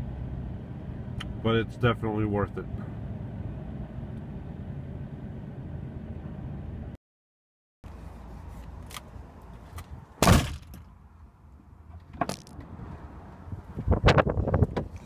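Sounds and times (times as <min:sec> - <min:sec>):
low steady rumble: 0:00.0 - 0:07.0
loud thump: 0:10.2 - 0:10.8.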